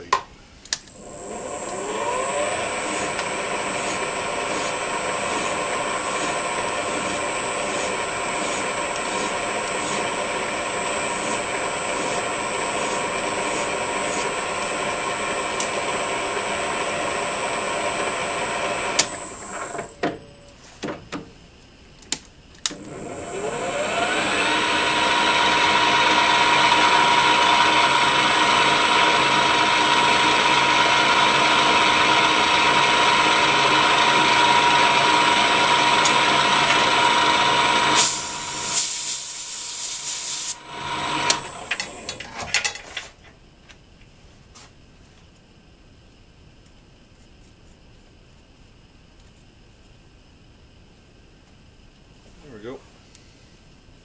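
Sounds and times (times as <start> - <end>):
lathe whining: 0.8 - 20.5, 22.7 - 42.8.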